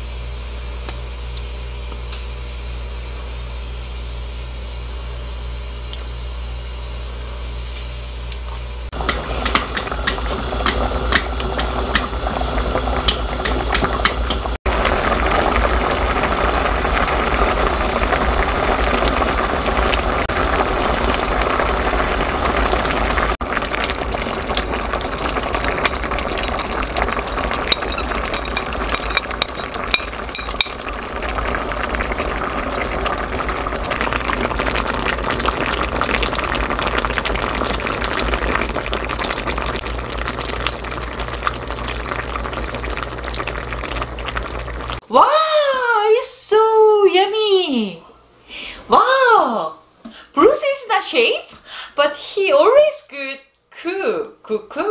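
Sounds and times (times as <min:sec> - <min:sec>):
liquid bubbling with pops: 0:09.0 - 0:45.0.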